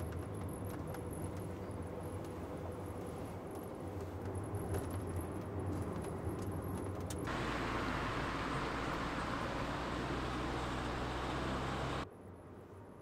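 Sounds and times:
tyres hissing on road: 0:07.3 - 0:12.0
car engine hum: 0:07.3 - 0:12.1.

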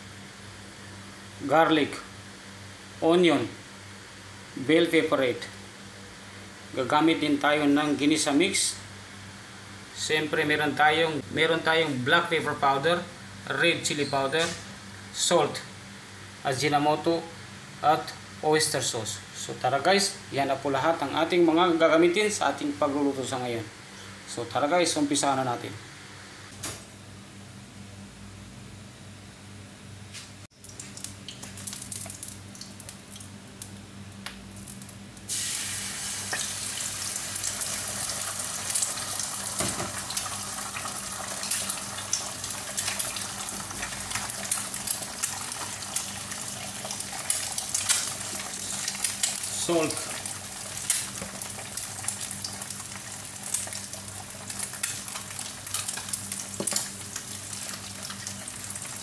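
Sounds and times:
eggs sizzling in oil: 0:30.5 - 0:59.0.

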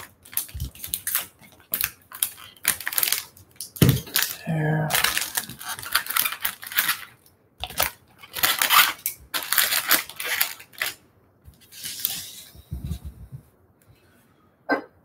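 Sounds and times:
card packs rustling and crinkling: 0:00.0 - 0:12.4
packs knocking on table: 0:03.8 - 0:04.2.

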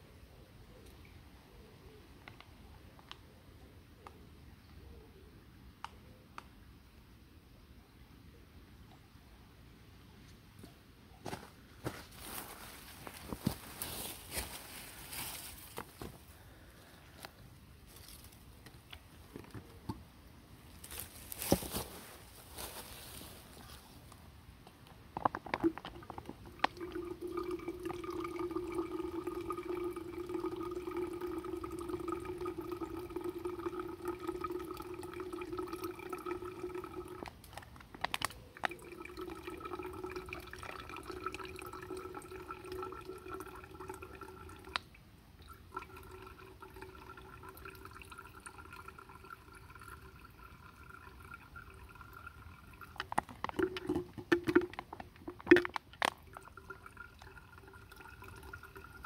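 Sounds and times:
water running into bottle: 0:25.4 - 0:59.0.

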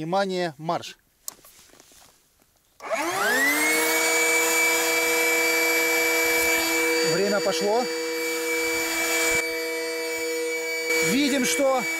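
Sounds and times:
electric pumps whining: 0:02.8 - 0:11.9.

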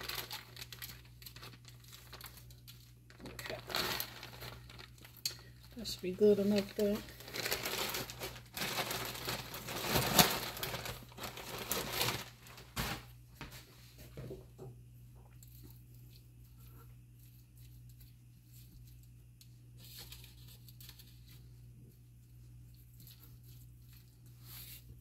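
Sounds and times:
plastic bag crinkling: 0:00.0 - 0:13.2.

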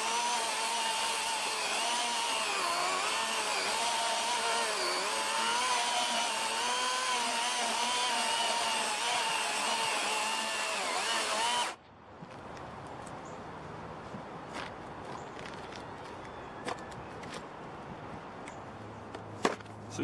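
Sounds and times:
chainsaw cutting wood: 0:00.0 - 0:11.8.

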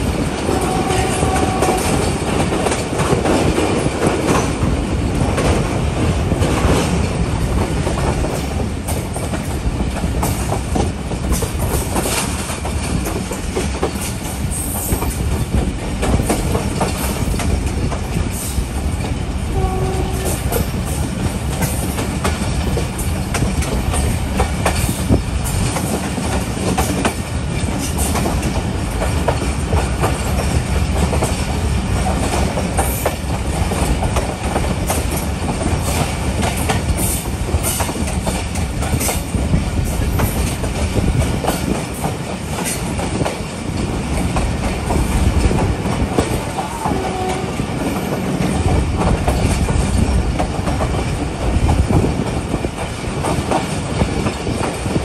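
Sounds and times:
train carriage rumbling: 0:00.0 - 0:55.0.

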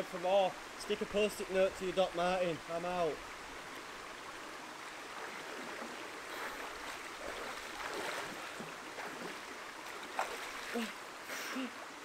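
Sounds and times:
running water rushing: 0:00.0 - 0:12.0
swimmer splashing: 0:05.1 - 0:11.7.

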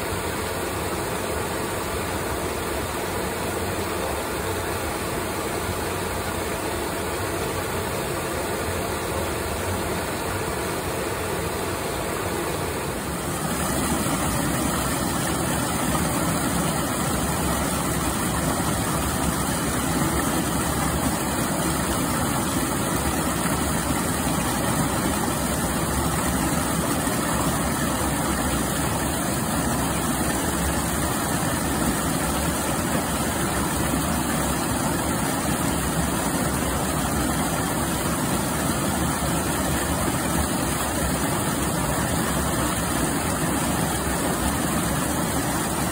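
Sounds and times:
waterfall rushing over rocks: 0:13.0 - 0:45.9.

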